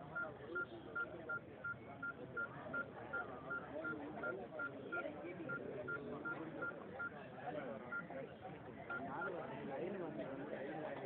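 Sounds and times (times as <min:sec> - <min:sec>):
murmur of crowd voices: 0:00.0 - 0:11.0.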